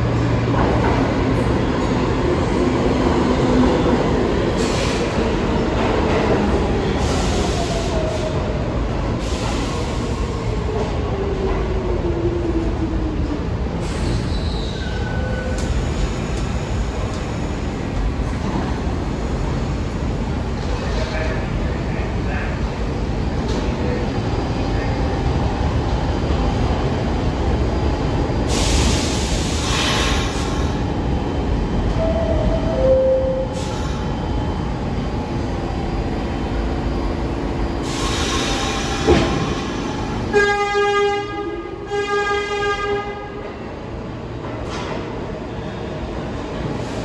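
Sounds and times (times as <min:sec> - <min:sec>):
subway train rumbling: 0:00.0 - 0:47.0
train horn blasts: 0:40.3 - 0:43.4.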